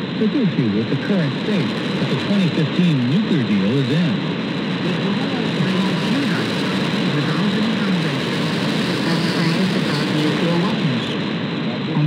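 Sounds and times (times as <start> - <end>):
radio static hiss: 0.0 - 12.0
faint voice talking: 0.2 - 4.2.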